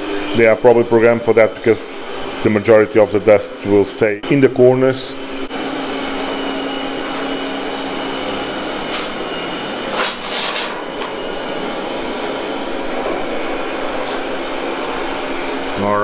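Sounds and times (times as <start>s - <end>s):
robot vacuum cleaner whirring: 5.0s - 16.0s.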